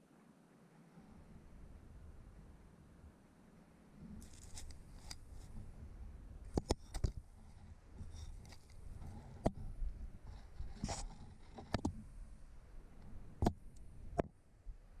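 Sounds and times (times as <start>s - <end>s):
camera scraping against brick: 4.1s - 5.7s, 6.5s - 12.1s.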